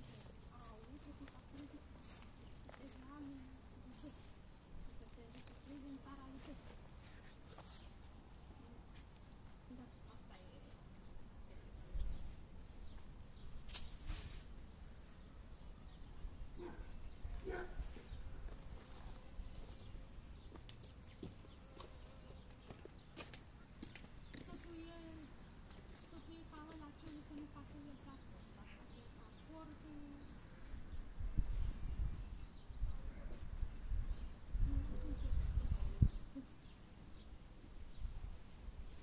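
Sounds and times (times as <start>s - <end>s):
soil rustles and footsteps: 0.0s - 10.5s, 12.0s - 15.5s, 17.3s - 27.9s
cricket chirping: 0.0s - 39.0s.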